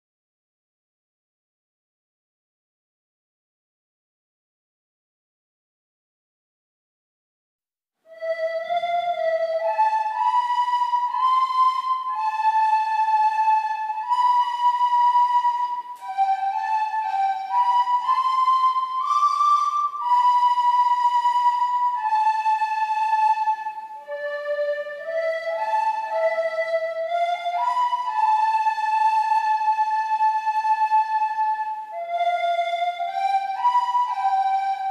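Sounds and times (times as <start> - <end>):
recorders playing slow melody: 8.1 - 34.9.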